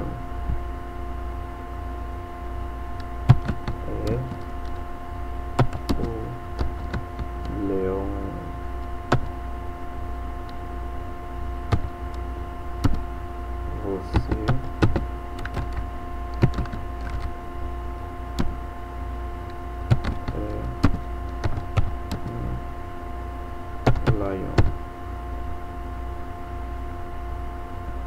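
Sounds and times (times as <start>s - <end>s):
steady electrical hum: 0.0s - 28.0s
keyboard keys clicking: 3.0s - 4.8s, 5.6s - 7.6s, 9.1s - 9.3s, 11.7s - 12.2s, 12.8s - 13.0s, 14.1s - 17.3s, 19.9s - 22.3s, 23.8s - 24.7s.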